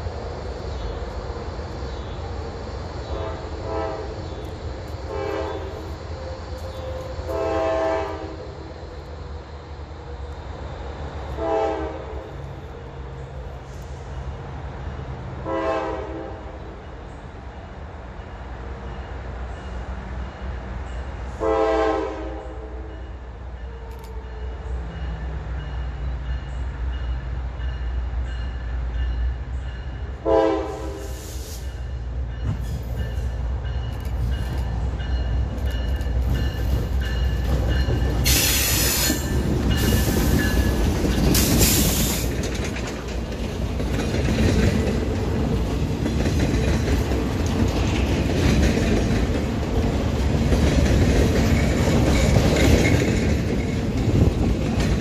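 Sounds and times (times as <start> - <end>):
train cars rolling past: 0.0 - 55.0
train horn blasts: 3.1 - 4.4, 5.1 - 8.7, 11.3 - 12.5, 15.4 - 16.8, 21.3 - 24.7, 29.9 - 31.8.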